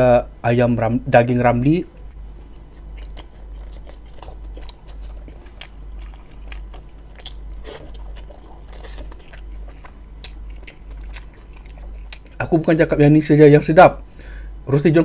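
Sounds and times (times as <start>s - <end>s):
steady low hum: 0.0s - 15.0s
man chewing food: 1.9s - 12.6s.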